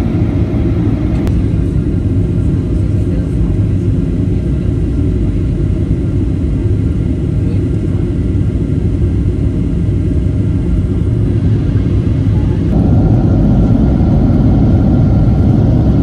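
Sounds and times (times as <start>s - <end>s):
airplane cabin engine rumble: 0.0s - 16.0s.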